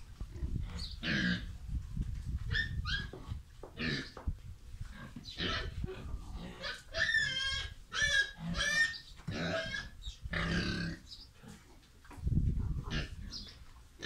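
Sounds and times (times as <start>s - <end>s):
pig grunting and squealing: 0.3s - 1.6s, 2.5s - 4.2s, 4.9s - 11.6s.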